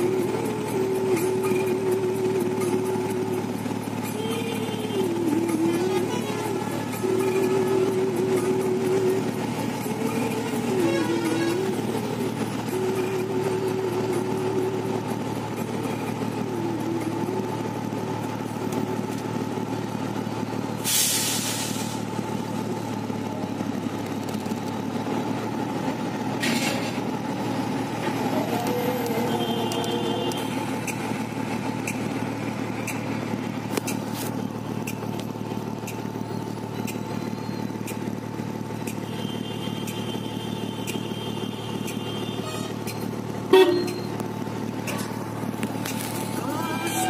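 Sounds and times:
heavy truck engine idling: 0.0s - 47.0s
air brake hiss: 20.8s - 22.1s.

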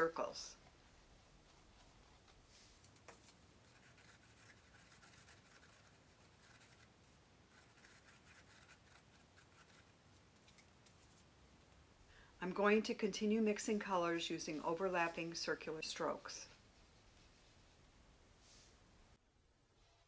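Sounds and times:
paintbrush rubbing on canvas: 1.4s - 10.0s.

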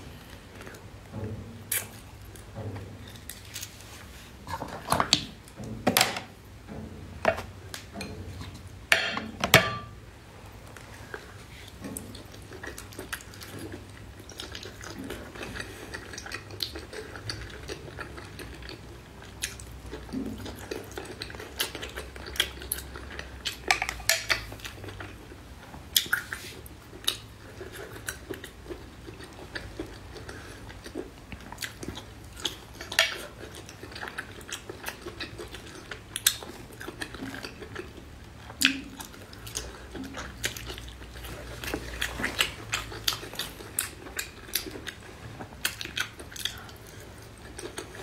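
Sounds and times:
chewing: 10.6s - 48.0s.

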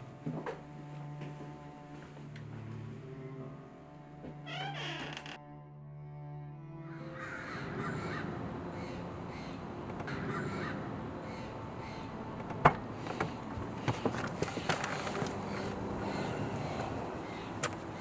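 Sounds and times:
crows cawing: 7.0s - 12.2s, 13.0s - 18.0s.

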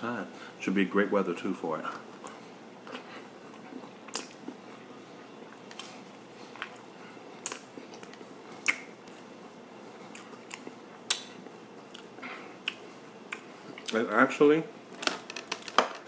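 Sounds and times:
wet chewing: 2.2s - 4.9s, 10.0s - 14.0s
mouth smacks and clicks: 7.4s - 9.2s, 10.1s - 14.0s.

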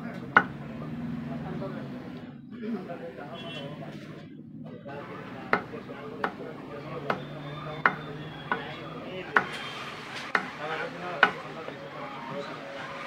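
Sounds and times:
faint voices: 0.0s - 13.0s
cleaver chopping bone on wood: 0.4s - 0.6s, 5.5s - 6.4s, 7.0s - 8.7s, 9.3s - 9.5s, 10.3s - 10.5s, 11.2s - 11.4s.

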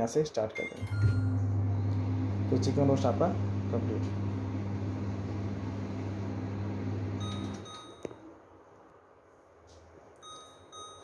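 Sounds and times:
microwave click: 0.8s - 8.1s
microwave oven humming: 0.8s - 8.1s.

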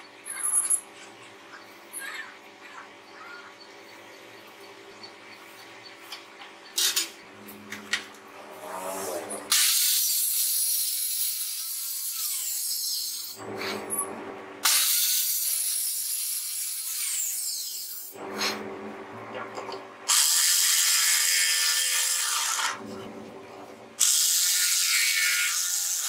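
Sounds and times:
circular saw cutting plywood: 20.1s - 23.3s, 24.0s - 26.0s.

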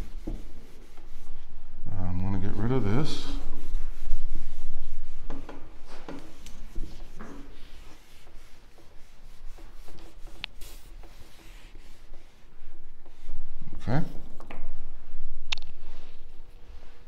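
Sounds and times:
rubbing and scratching on whiteboard: 0.0s - 1.5s, 2.4s - 13.4s.

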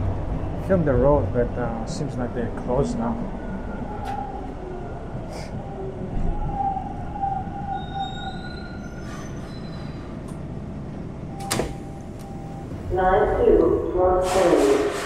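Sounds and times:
subway train wheels rumbling: 0.0s - 15.0s
wheels squealing on rails: 6.2s - 10.3s.

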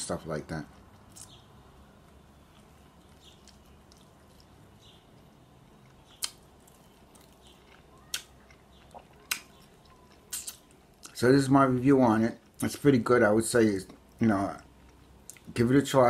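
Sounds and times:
person chewing food: 2.0s - 11.2s
mouth clicks: 7.4s - 11.2s.

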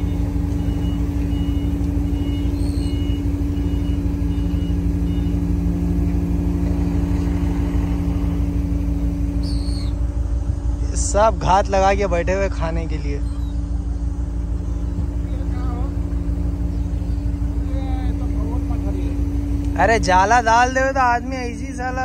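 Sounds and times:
faint high beeps: 0.0s - 5.9s
machinery drone: 0.0s - 22.0s.

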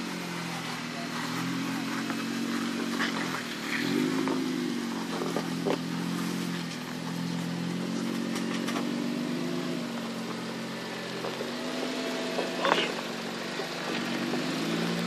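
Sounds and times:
car engine at low revs: 0.0s - 15.0s
sharp knocks and clatter: 8.0s - 9.0s.

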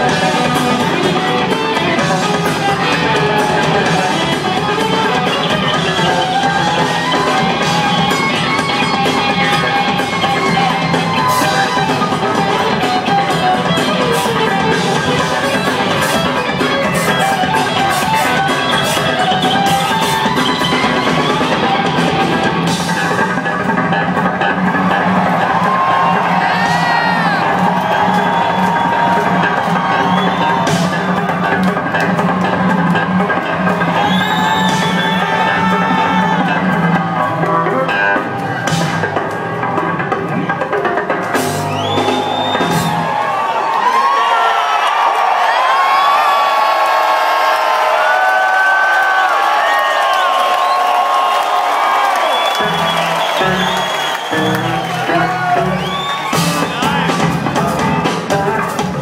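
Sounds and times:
electric guitar: 0.0s - 43.2s
drum kit: 0.0s - 44.2s, 44.8s - 59.0s
electric bass: 52.6s - 59.0s.

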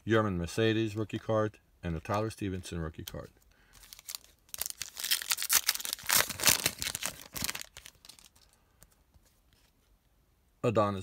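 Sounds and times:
wrapper tearing and crinkling: 3.8s - 8.6s.

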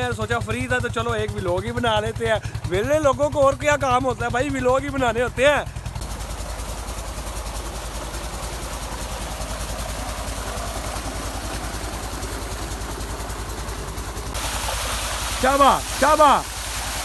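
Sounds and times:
pump engine thudding: 0.0s - 17.0s
water pouring into tank: 14.4s - 17.0s.

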